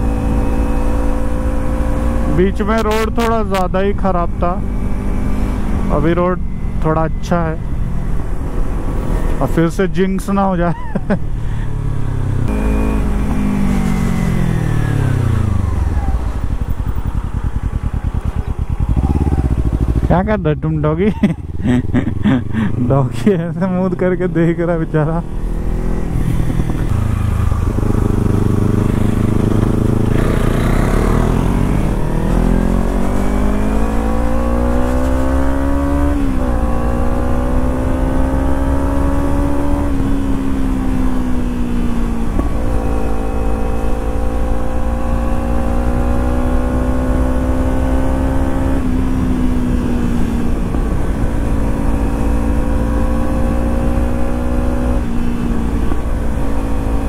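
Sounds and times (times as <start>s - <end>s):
motorcycle engine accelerating: 0.0s - 9.9s, 10.6s - 57.0s
wind rumble on microphone: 25.6s - 33.4s.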